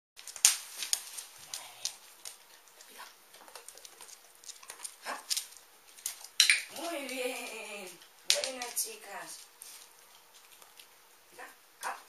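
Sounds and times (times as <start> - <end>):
dog claws clicking on wooden floor: 0.2 - 7.2, 8.2 - 9.5
dogs scuffling: 0.2 - 11.0.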